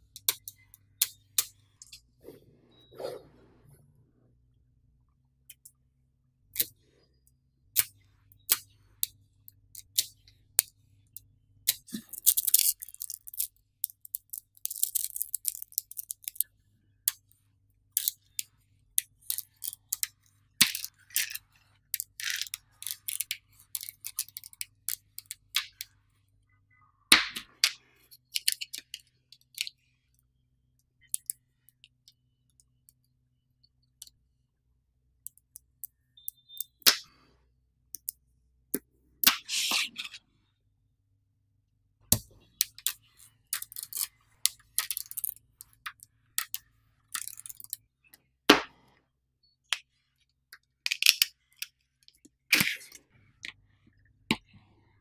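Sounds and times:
magnet balls clicking: 0:11.7 - 0:16.5, 0:17.9 - 0:26.0, 0:42.1 - 0:48.2.

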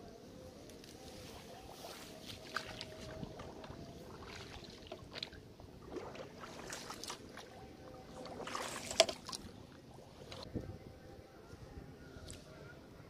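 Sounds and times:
shallow water sloshing and splashing: 0:01.7 - 0:10.5.

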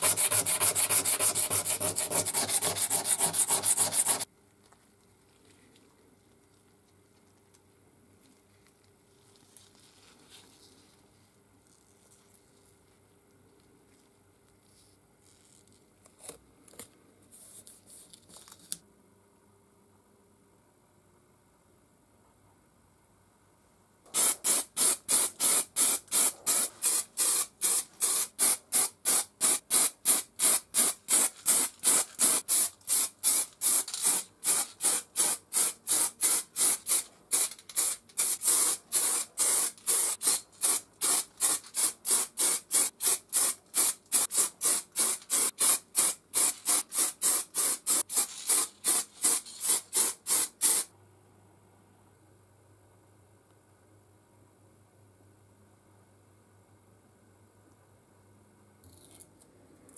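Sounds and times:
aerosol paint spraying: 0:00.0 - 0:04.3, 0:24.1 - 0:50.9.

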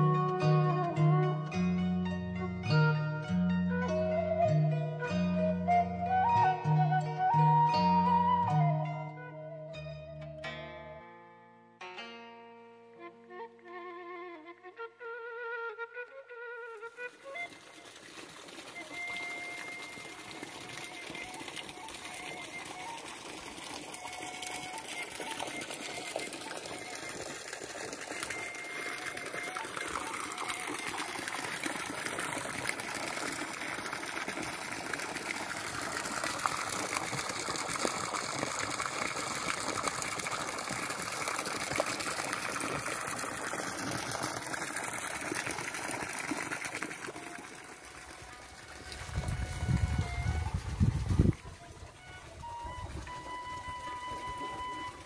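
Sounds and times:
water gushing and splashing: 0:16.9 - 0:55.0.

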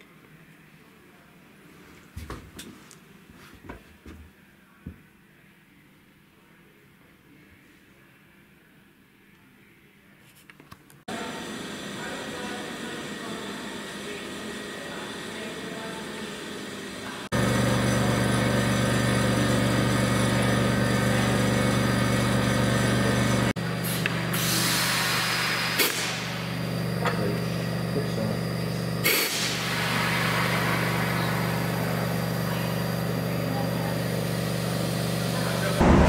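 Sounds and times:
steady mechanical hum: 0:11.1 - 0:36.0.

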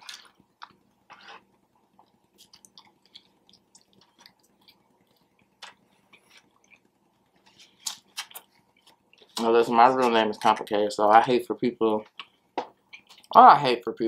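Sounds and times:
person chewing food: 0:00.0 - 0:09.4, 0:12.1 - 0:13.4.

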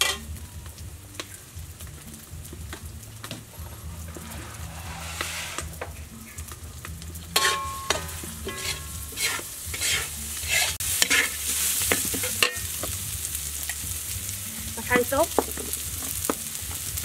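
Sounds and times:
metal spatula scraping wok: 0:00.0 - 0:00.3, 0:03.4 - 0:06.6, 0:07.3 - 0:12.8
rice sizzling: 0:00.0 - 0:17.0.

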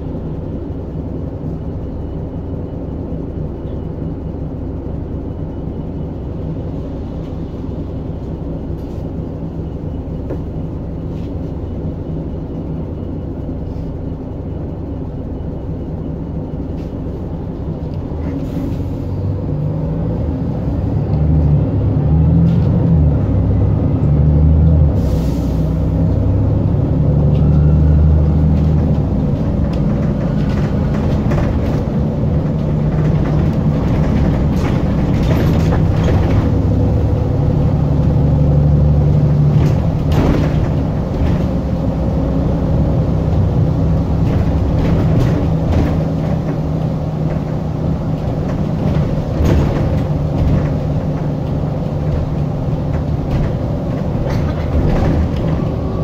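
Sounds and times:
bus diesel engine droning: 0:00.0 - 0:56.0
knocks and rattles: 0:28.6 - 0:36.9, 0:39.4 - 0:41.7, 0:48.2 - 0:55.9.

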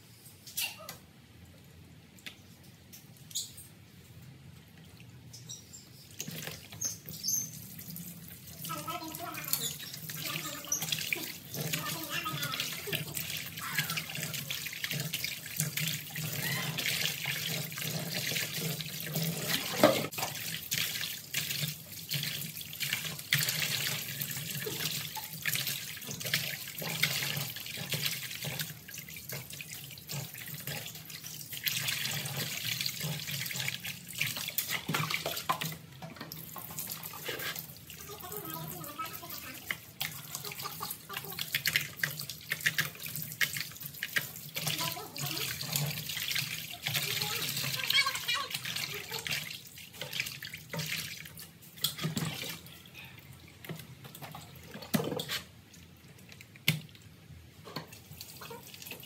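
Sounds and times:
hands scrubbing meat in water: 0:06.1 - 0:52.8
water splashing: 0:06.1 - 0:59.0.

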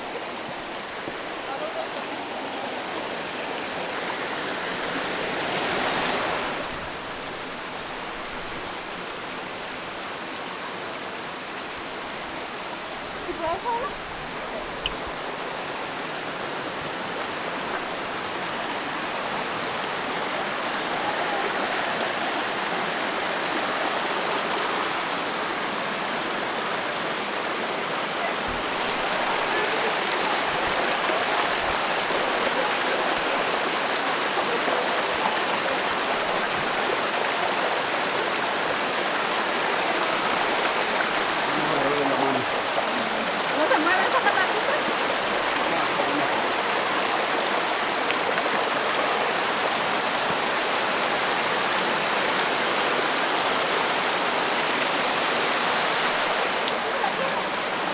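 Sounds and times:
creek water rushing over rocks: 0:00.0 - 0:57.9.

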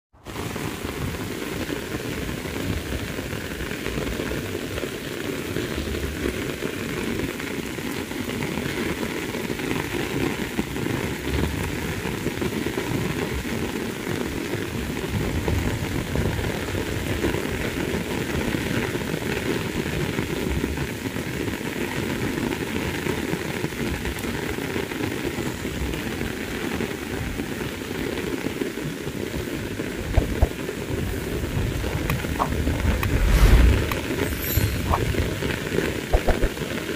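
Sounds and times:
heavy rain on grass: 0:00.1 - 0:36.9.

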